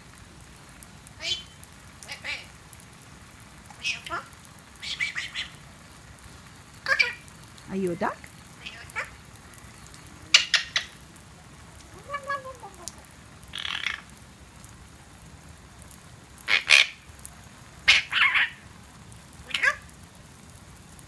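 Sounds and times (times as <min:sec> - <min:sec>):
falling water hiss: 0:00.0 - 0:21.0
parrot chattering calls: 0:01.2 - 0:02.5, 0:03.7 - 0:05.6, 0:06.8 - 0:07.3, 0:08.0 - 0:09.2, 0:10.3 - 0:11.0, 0:11.9 - 0:14.1, 0:16.5 - 0:17.0, 0:17.8 - 0:18.6, 0:19.4 - 0:19.9.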